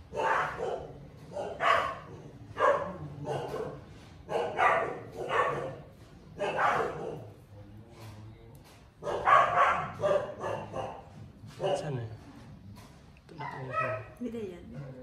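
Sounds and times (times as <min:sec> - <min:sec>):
dog barking: 0:00.1 - 0:07.4, 0:09.0 - 0:12.0, 0:13.4 - 0:14.2.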